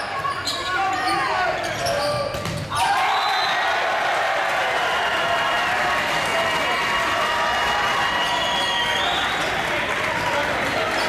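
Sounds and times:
crowd cheering and shouting: 2.7s - 11.0s
people clapping: 2.8s - 11.0s.

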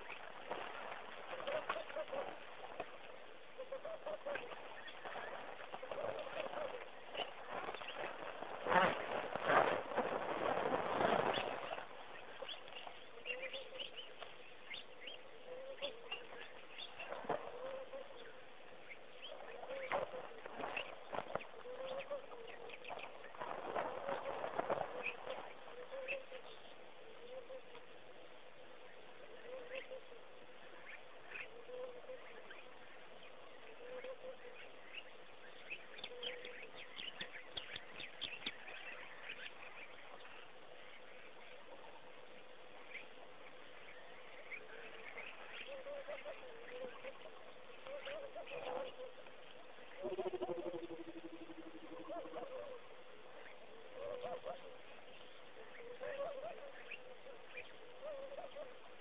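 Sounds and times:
small birds chirping: 0.0s - 9.5s, 11.0s - 28.0s, 28.7s - 59.0s
faint steady hum: 0.0s - 59.0s
faint low wavering tone: 28.8s - 59.0s.

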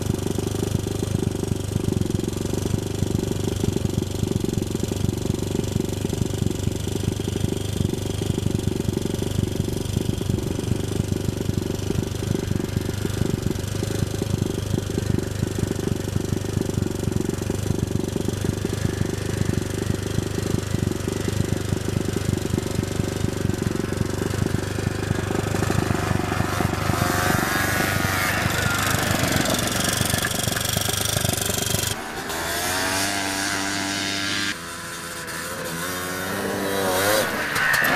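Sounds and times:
engine running with rattly pulsing: 0.0s - 37.9s
steadier engine note: 17.2s - 37.9s.

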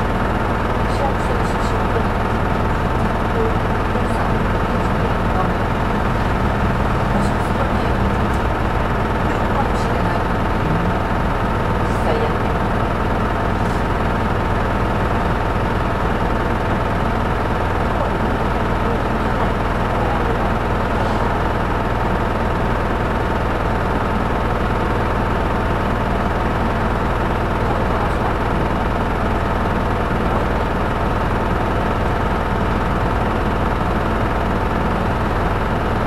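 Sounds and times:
bus engine and road noise: 0.8s - 22.6s.

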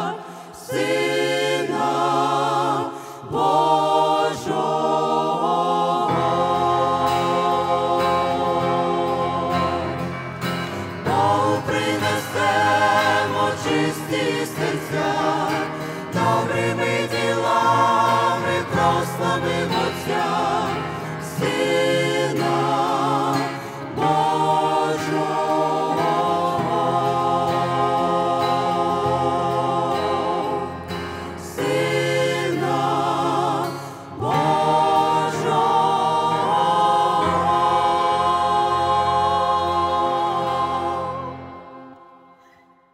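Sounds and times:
choir singing in harmony: 0.0s - 42.9s.

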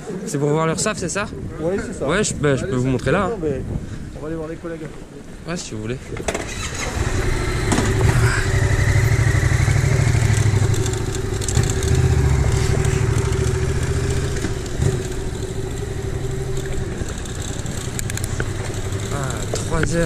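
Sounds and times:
motorcycle engine running: 6.6s - 20.0s.

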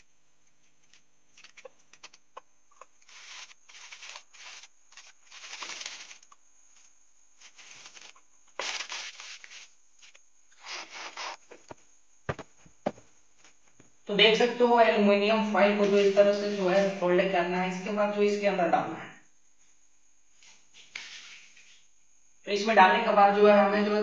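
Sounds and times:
foil rustling and crinkling: 3.0s - 6.3s, 7.4s - 11.4s.

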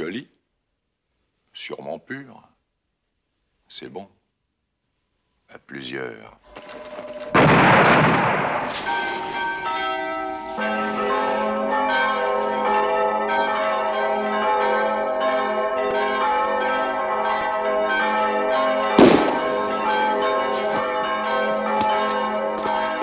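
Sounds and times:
church bells pealing: 6.5s - 23.0s
rifle shot: 7.3s - 9.3s, 19.0s - 19.8s.

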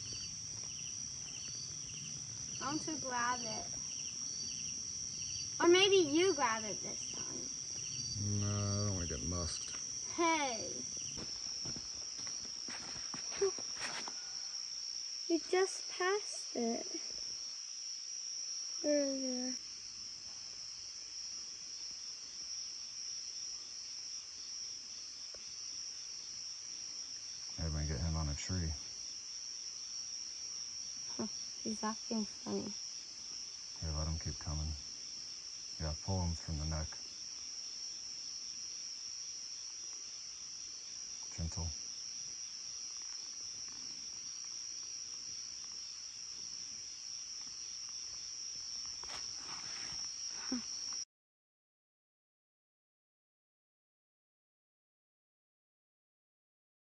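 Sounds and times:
crickets trilling: 0.0s - 51.0s
night insects droning: 0.0s - 51.0s
faint rustling: 9.5s - 14.4s, 48.8s - 50.7s.

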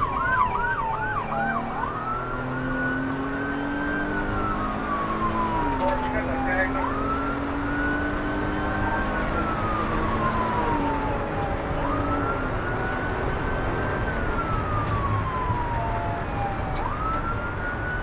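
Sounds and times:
police siren wailing: 0.0s - 18.0s
road and engine noise: 0.0s - 18.0s.

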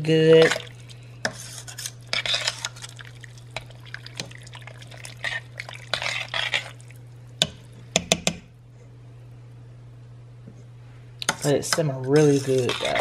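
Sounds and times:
spoon stirring thick soup: 0.3s - 7.6s, 11.2s - 13.0s
spoon scraping metal pot: 0.4s - 3.0s, 5.0s - 6.8s, 11.2s - 13.0s.

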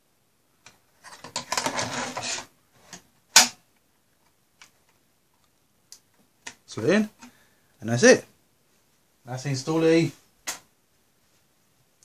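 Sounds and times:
metal scraping and rattling: 1.0s - 2.5s.

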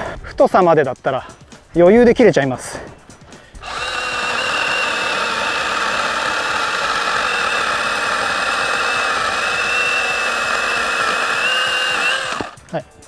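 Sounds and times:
chainsaw motor whine: 3.6s - 12.6s.

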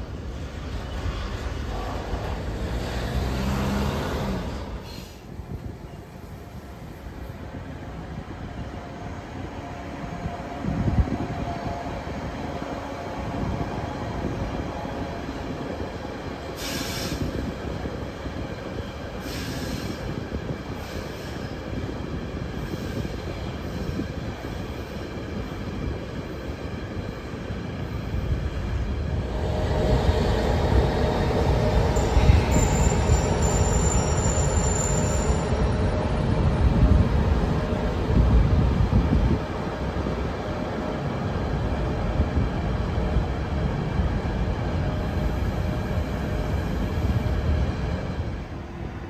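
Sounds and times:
train rumbling on rails: 0.0s - 49.0s
high-pitched wheel squeal: 32.0s - 35.7s.

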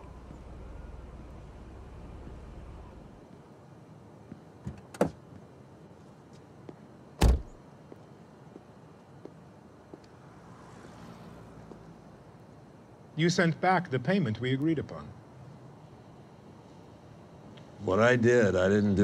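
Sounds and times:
light footsteps on pavement: 3.2s - 12.3s
car door shutting with a thump: 7.2s - 7.6s.

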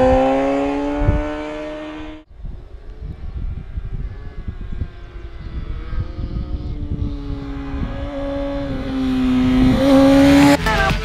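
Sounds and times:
motorcycle engine approaching: 0.0s - 11.0s.

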